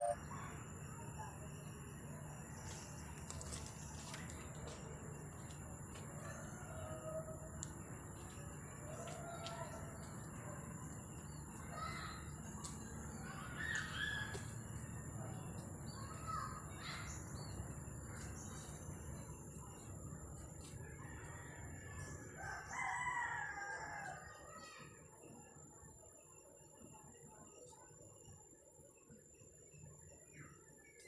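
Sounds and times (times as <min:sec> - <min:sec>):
bird calls: 0:06.2 - 0:22.2
rooster crowing: 0:21.1 - 0:24.4.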